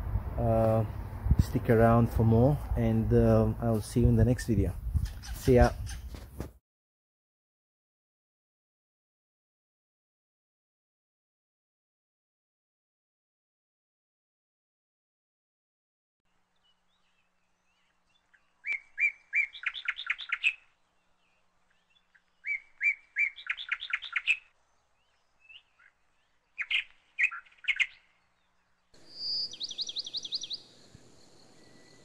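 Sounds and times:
bird fast trill: 5.0s - 6.1s, 18.6s - 20.7s, 22.1s - 24.5s, 26.6s - 28.1s, 29.0s - 32.0s
songbirds singing: 16.3s - 32.0s.

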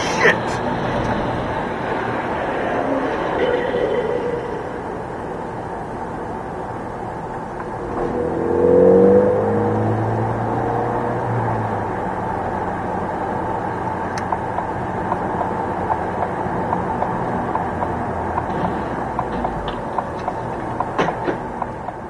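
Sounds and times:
car road and engine noise: 0.0s - 22.0s
louder knocks: 18.4s - 21.7s.

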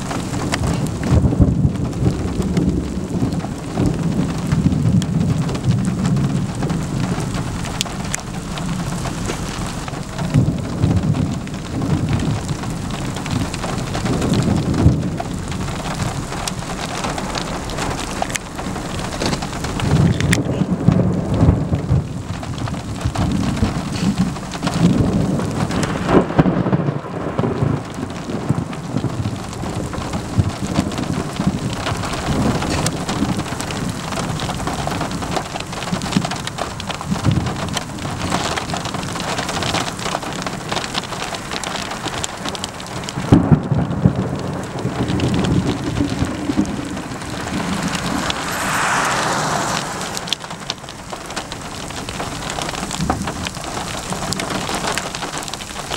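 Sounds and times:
sharp thunder claps: 0.0s - 34.6s, 43.1s - 52.2s
low rolling thunder: 0.0s - 38.3s, 42.8s - 55.6s
steady rain hiss: 0.0s - 55.9s
tyres hissing on wet road: 2.7s - 55.9s.

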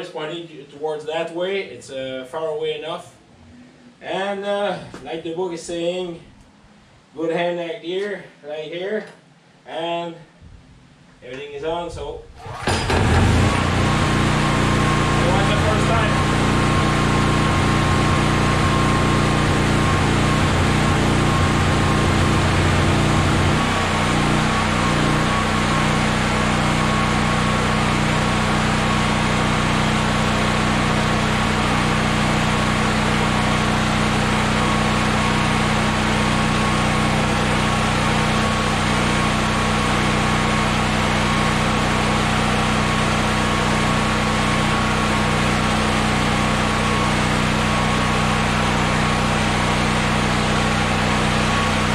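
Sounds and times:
generator engine running: 12.2s - 51.9s.

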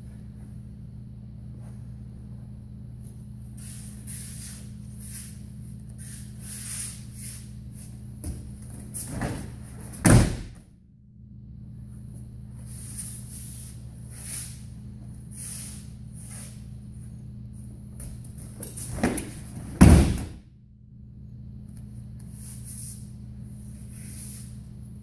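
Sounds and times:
low steady hum: 0.0s - 25.0s
feet shuffling on mats: 6.0s - 10.2s
body slapping on mats: 8.2s - 10.6s, 18.0s - 20.4s.

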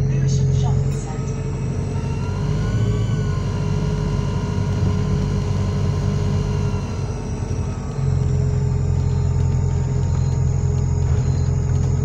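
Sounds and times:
bus engine rumble: 0.0s - 12.0s
steady whining tones: 0.0s - 12.0s.

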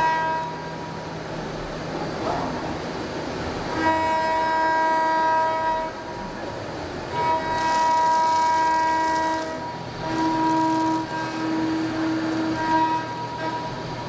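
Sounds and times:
hiss of metal cutting: 0.0s - 14.0s
milling cutter whining: 7.1s - 14.0s.

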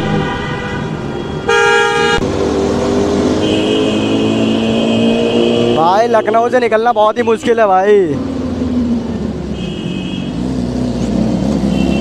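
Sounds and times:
vehicle horn blast: 0.0s - 2.2s, 3.4s - 6.2s, 9.5s - 10.4s, 11.6s - 12.0s
engine and traffic noise: 0.0s - 12.0s.

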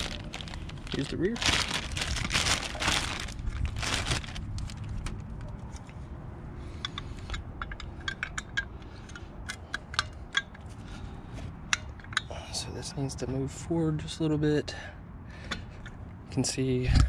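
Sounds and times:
plastic bag crinkle: 0.0s - 5.1s.

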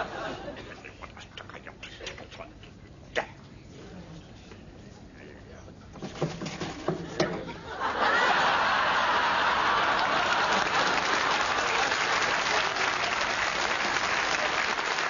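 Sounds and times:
audience applauding: 8.1s - 15.0s.

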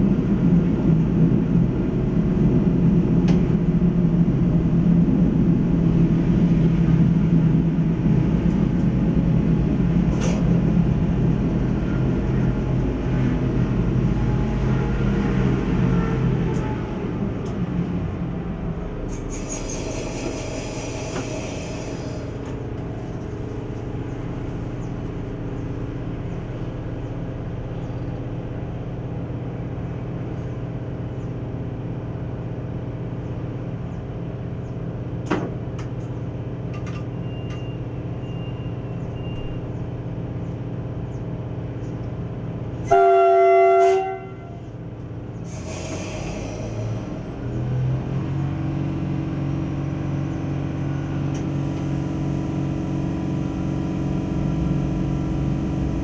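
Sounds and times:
railcar engine drone: 0.0s - 56.0s
click: 17.4s - 18.0s, 51.3s - 51.5s
train horn blast: 42.8s - 44.6s.

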